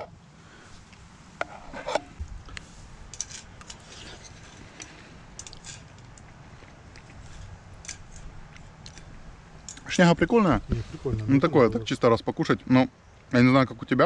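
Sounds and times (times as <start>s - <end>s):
spoon scraping metal pot: 1.4s - 2.2s.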